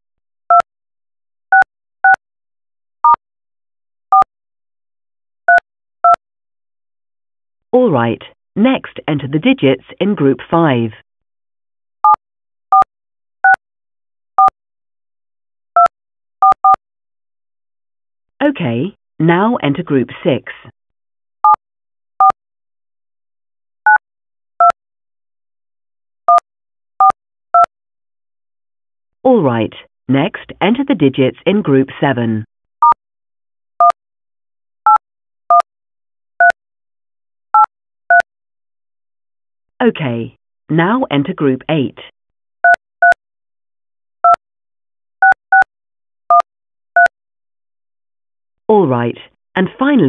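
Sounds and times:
keypad dialing tones: 0:15.8 - 0:16.8, 0:27.0 - 0:27.7, 0:34.9 - 0:35.7, 0:37.6 - 0:38.2, 0:42.7 - 0:43.2, 0:45.2 - 0:45.7, 0:46.3 - 0:47.1.

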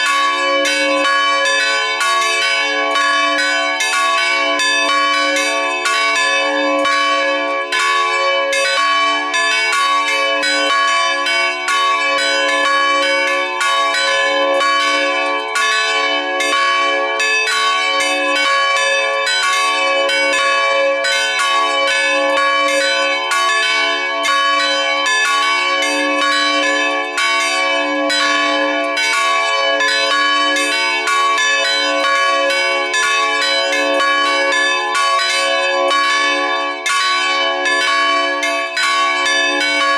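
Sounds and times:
church bells ringing: 0:00.0 - 0:39.9.

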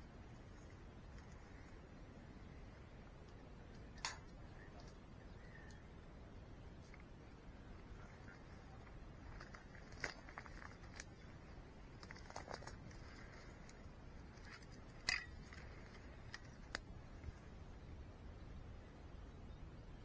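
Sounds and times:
sharp clicks and snaps: 0:03.2 - 0:05.0.

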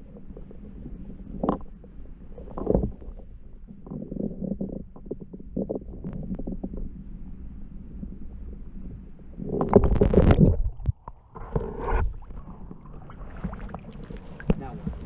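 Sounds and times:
muffled underwater water rumble: 0:00.0 - 0:15.0
water sloshing and splashing: 0:09.6 - 0:15.0.

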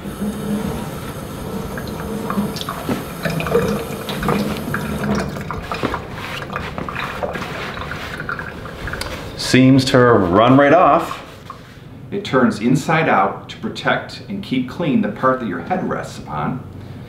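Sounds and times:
water dripping: 0:00.0 - 0:09.5
wet pillow being handled: 0:00.0 - 0:09.5.

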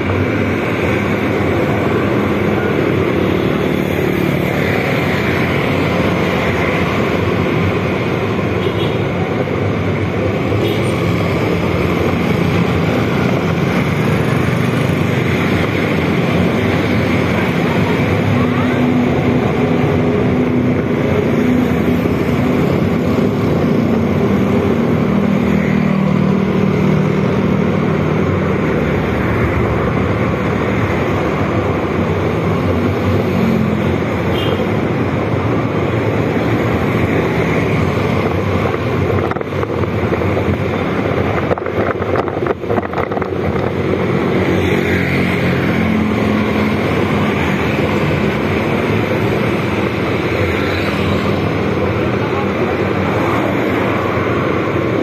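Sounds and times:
wind noise on microphone: 0:35.1 - 0:44.7.

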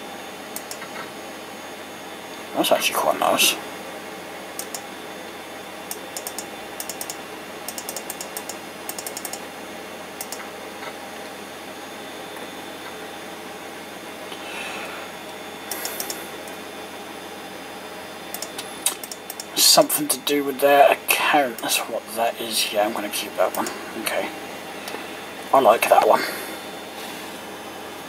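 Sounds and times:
computer mouse clicking: 0:00.6 - 0:01.0, 0:04.6 - 0:04.9, 0:05.9 - 0:09.4, 0:10.2 - 0:10.5, 0:15.7 - 0:16.6, 0:18.3 - 0:19.5.

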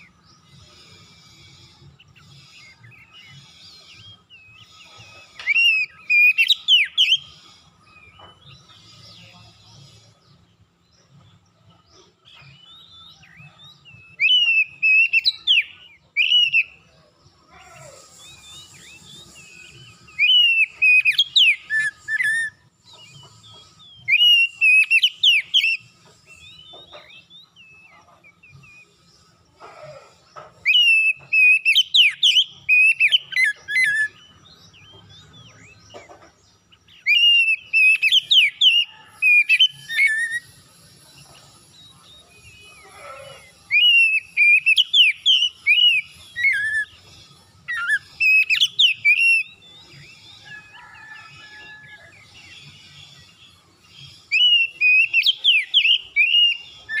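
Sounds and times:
bird singing whistled phrases: 0:42.1 - 0:47.0, 0:54.2 - 0:57.0.

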